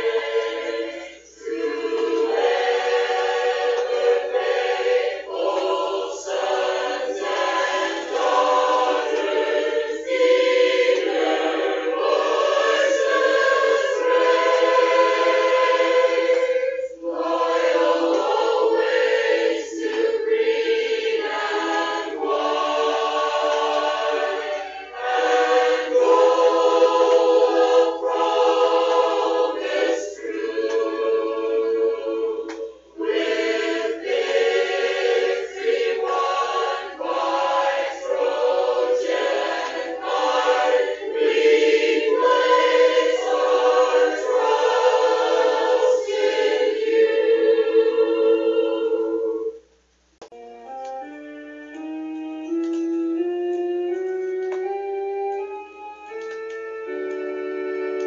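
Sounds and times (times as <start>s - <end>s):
choir singing held chords: 0.0s - 58.0s.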